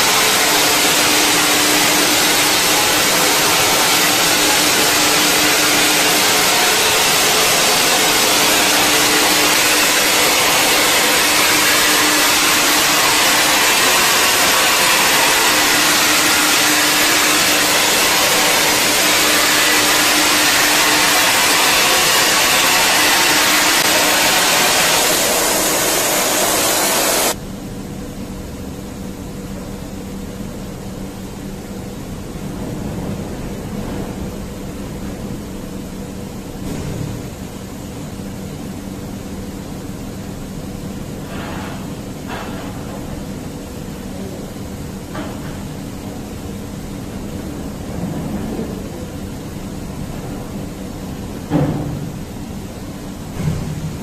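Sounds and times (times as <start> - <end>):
spray machine hissing: 0.0 - 27.4
steady machine hum: 0.0 - 54.0.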